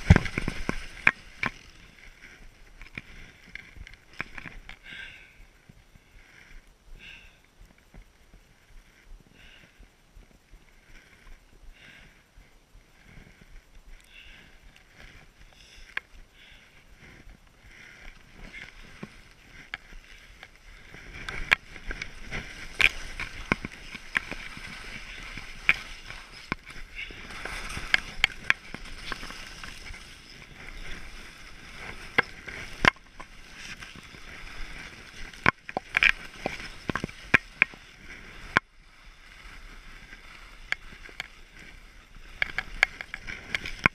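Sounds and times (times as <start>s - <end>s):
skis swishing over snow: 0.0s - 4.7s, 14.2s - 43.9s.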